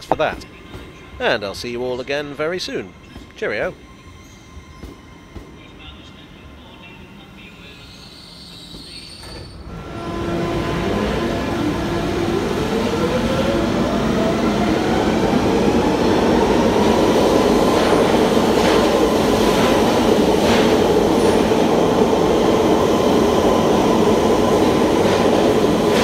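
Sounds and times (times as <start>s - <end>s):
train running rumble: 0.0s - 7.8s, 8.6s - 26.0s
train motor whine: 7.9s - 15.4s.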